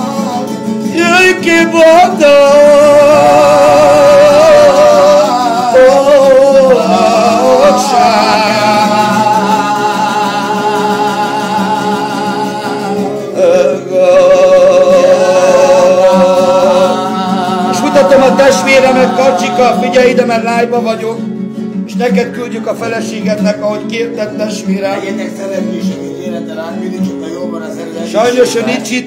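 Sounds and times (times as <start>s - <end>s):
man singing with vibrato: 0.0s - 21.3s, 27.1s - 29.0s
backing music: 0.0s - 29.0s.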